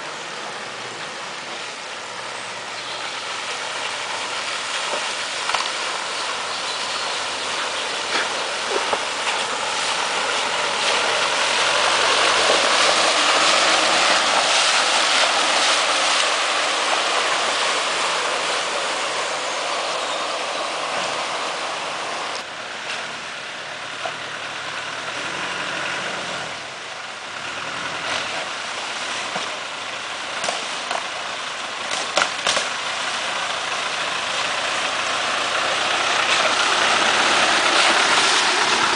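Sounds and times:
off-road engines running: 0:00.0 - 0:38.9
water splashing around tyres: 0:00.0 - 0:38.9.

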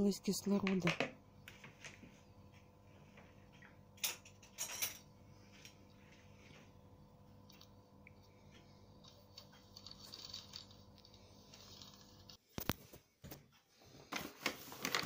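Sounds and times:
utensils clinking on bowls: 0:04.0 - 0:05.1.

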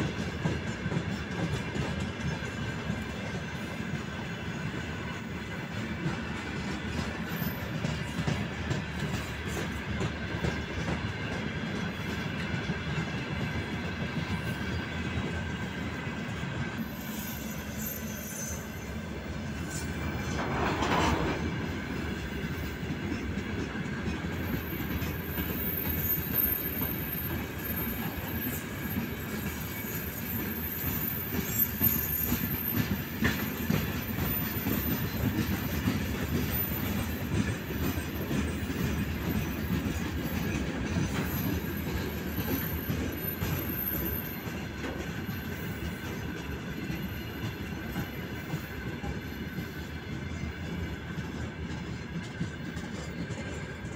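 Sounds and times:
train wheels rumbling on rails: 0:00.0 - 0:53.9
high-pitched wheel squeal: 0:16.8 - 0:19.1.

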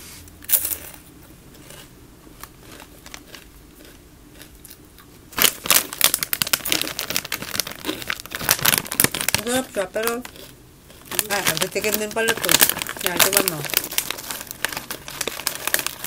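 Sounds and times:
faint chewing: 0:00.6 - 0:05.2, 0:10.0 - 0:12.7
foil snack bag crinkling: 0:01.6 - 0:04.5, 0:05.3 - 0:16.0
crisp crunch of biting chip: 0:01.6 - 0:16.0.

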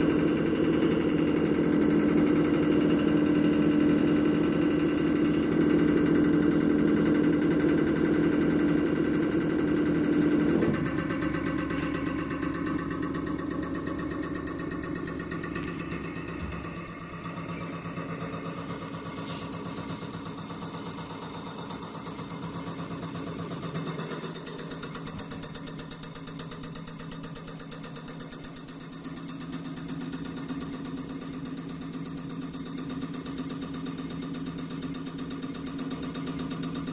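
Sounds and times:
machine hum: 0:00.0 - 0:29.2.

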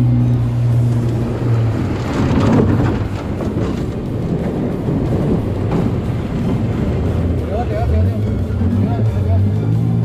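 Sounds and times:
water splashing against boat hull: 0:00.0 - 0:08.5
outboard motor hum: 0:00.0 - 0:10.0
knocks and slaps on hull: 0:00.9 - 0:07.9.

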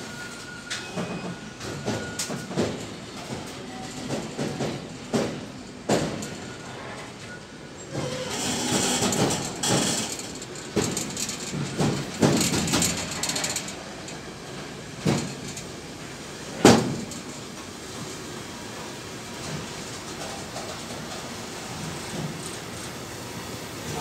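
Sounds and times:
freight train wheels rumbling: 0:00.0 - 0:24.0.

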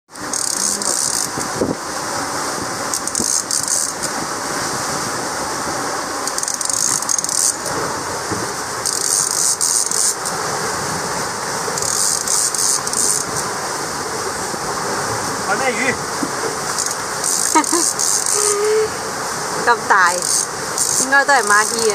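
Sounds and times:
rushing wind and sea: 0:00.1 - 0:21.9
fishing reel ratchet clicking: 0:00.2 - 0:01.5, 0:02.9 - 0:04.1, 0:06.2 - 0:07.7, 0:08.8 - 0:10.4, 0:11.8 - 0:13.4, 0:16.7 - 0:18.6, 0:20.1 - 0:21.9.

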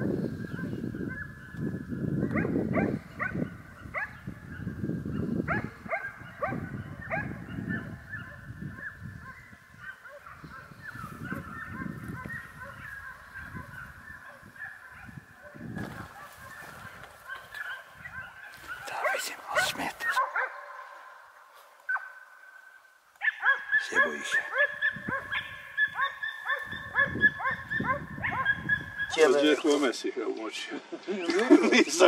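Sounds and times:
dogs yelping and baying: 0:00.5 - 0:01.6, 0:02.2 - 0:21.0, 0:23.2 - 0:29.2.

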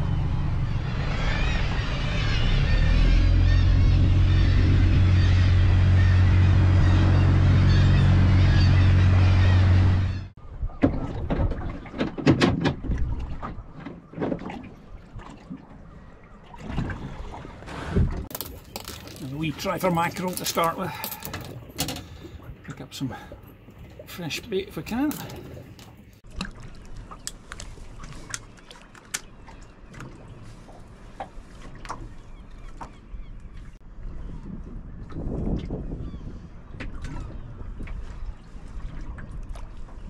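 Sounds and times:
low steady rumble: 0:00.0 - 0:10.6
water slapping hull: 0:10.6 - 0:40.0.

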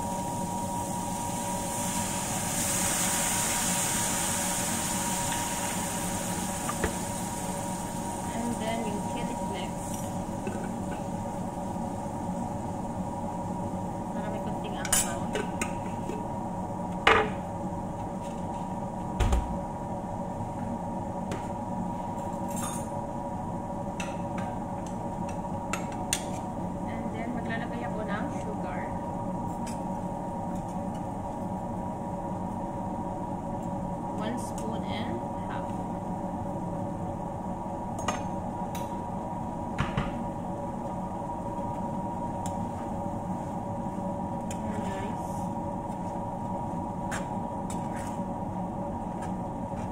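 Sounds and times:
fish sizzling in a frying pan: 0:00.0 - 0:10.4
steady hum: 0:00.0 - 0:49.9.

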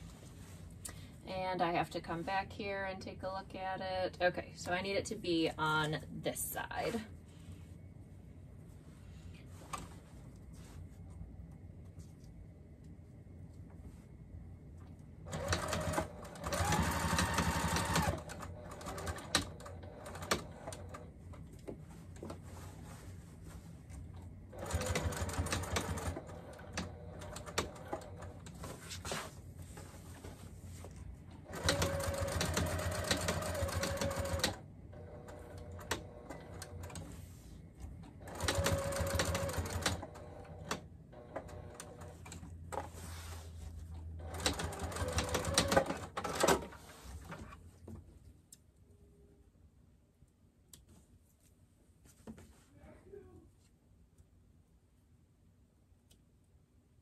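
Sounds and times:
electric sewing machine stitching: 0:15.3 - 0:21.0, 0:24.6 - 0:28.4, 0:31.5 - 0:37.0, 0:38.2 - 0:42.3, 0:44.2 - 0:46.8.

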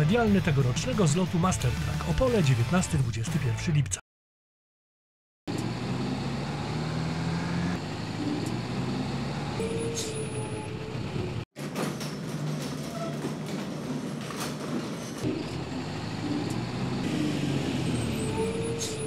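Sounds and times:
diesel truck engine running: 0:05.5 - 0:11.4, 0:15.1 - 0:19.0.

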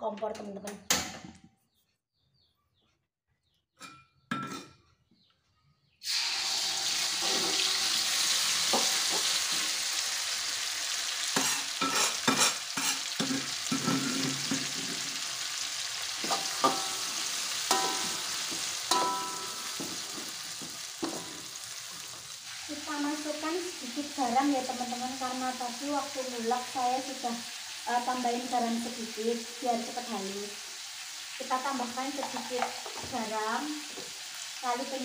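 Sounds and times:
paste sizzling in hot oil: 0:06.0 - 0:35.0
metal spoon scraping wok: 0:06.4 - 0:09.6, 0:11.4 - 0:15.1, 0:16.2 - 0:20.4.

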